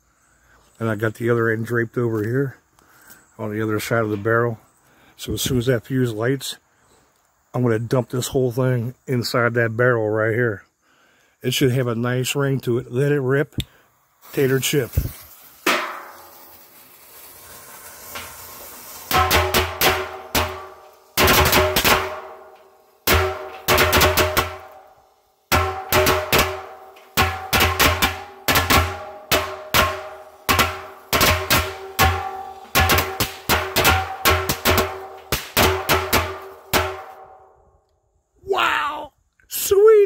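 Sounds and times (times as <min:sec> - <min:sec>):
firecrackers banging in metal drum: 0:14.3 - 0:37.4
metal drum ringing: 0:15.7 - 0:16.2, 0:19.1 - 0:24.8, 0:25.5 - 0:37.4.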